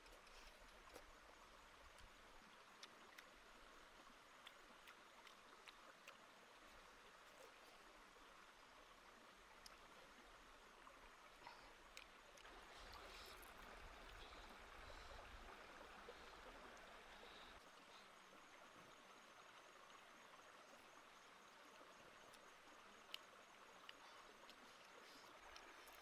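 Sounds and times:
faint outdoor hiss: 0:00.0 - 0:26.0
faint small clicks: 0:11.9 - 0:13.0, 0:23.0 - 0:26.0.

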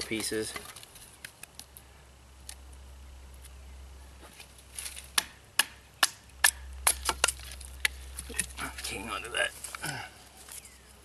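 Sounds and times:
knife splitting wood: 0:04.8 - 0:08.6.

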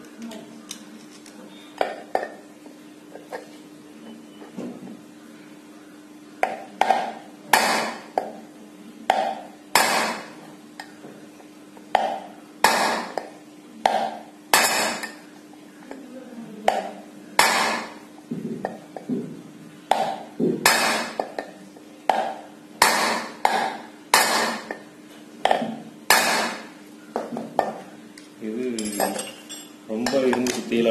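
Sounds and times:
steady low hum: 0:00.0 - 0:30.9
hammer striking steel rod: 0:06.4 - 0:08.3, 0:09.1 - 0:10.3, 0:12.0 - 0:13.3, 0:13.9 - 0:15.2, 0:16.7 - 0:18.0, 0:19.9 - 0:21.4, 0:22.1 - 0:24.8, 0:25.5 - 0:26.7.

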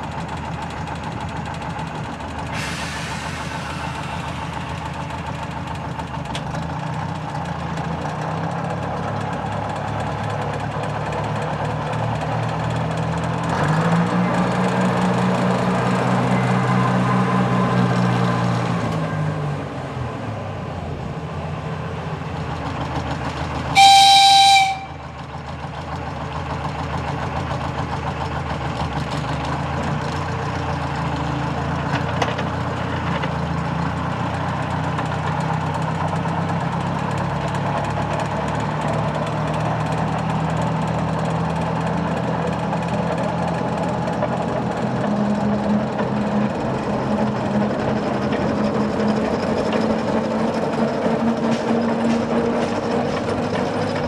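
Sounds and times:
diesel locomotive engine running: 0:00.0 - 0:54.0
locomotive horn blast: 0:23.7 - 0:25.2.

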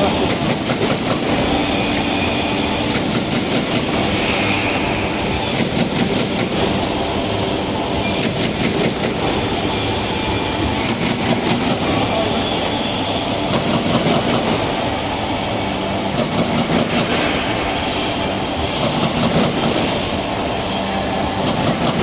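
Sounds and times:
machine mechanical hum: 0:00.0 - 0:22.0
rapid machine clicking: 0:00.1 - 0:01.4, 0:02.8 - 0:04.1, 0:05.6 - 0:06.8, 0:08.1 - 0:09.3, 0:10.8 - 0:12.0, 0:13.4 - 0:14.8, 0:16.1 - 0:17.3, 0:18.7 - 0:20.2, 0:21.4 - 0:22.0.

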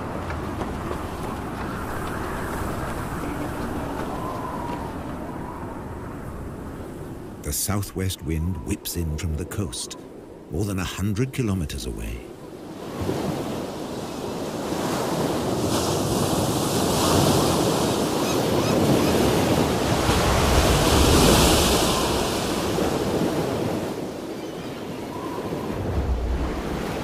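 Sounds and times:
wind blowing over microphone: 0:00.0 - 0:07.5, 0:25.0 - 0:27.0
ocean surf crashing on rocks: 0:00.0 - 0:27.0.

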